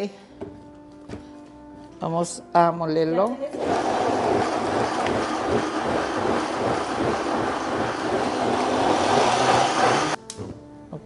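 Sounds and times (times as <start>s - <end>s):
blender running: 3.5s - 10.2s.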